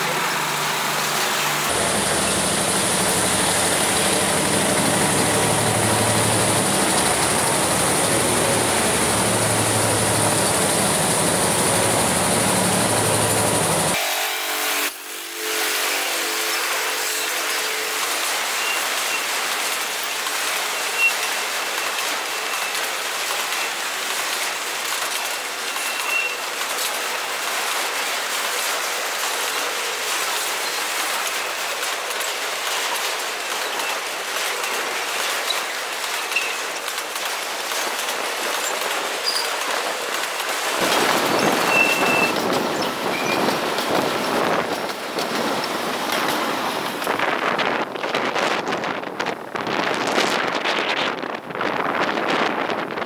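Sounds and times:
freight cars clattering on rails: 0.0 - 14.0, 16.6 - 53.0
high wheel squeals: 15.5 - 19.4, 20.0 - 23.9, 25.2 - 26.5, 41.2 - 43.6.

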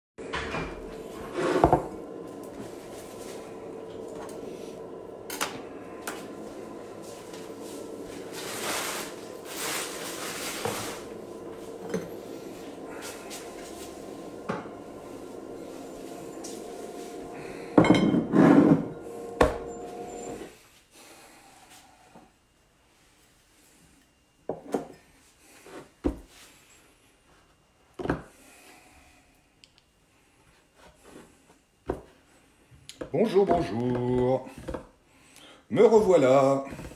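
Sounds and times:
steady hum: 0.2 - 24.1
kitchen things clattering: 17.7 - 20.4.

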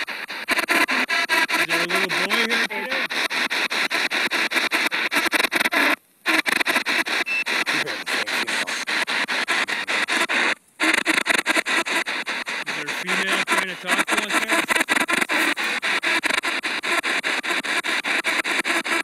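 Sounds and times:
radio static sweeping: 0.0 - 19.0
snatches of radio voice: 1.4 - 4.2, 7.4 - 16.2.

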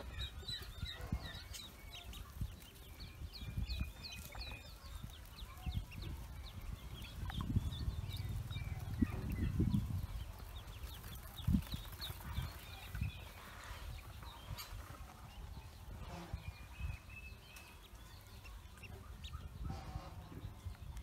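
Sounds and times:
ducklings peeping: 0.0 - 21.0
low rumble: 6.1 - 11.6.

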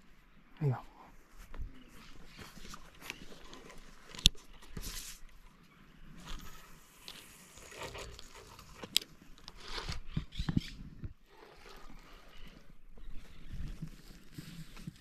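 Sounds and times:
rustling and crunching: 6.1 - 15.0.

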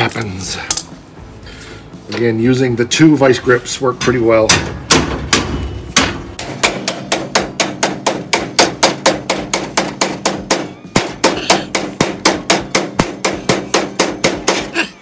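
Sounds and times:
rapid hammer blows on steel: 4.5 - 14.9.

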